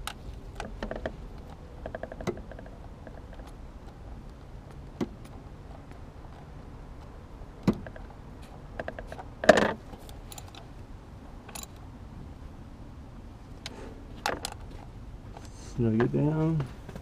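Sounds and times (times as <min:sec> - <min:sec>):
metal clatter: 0:08.8 - 0:10.7
metallic wrench clicks and clinks: 0:10.1 - 0:10.6, 0:11.5 - 0:11.8.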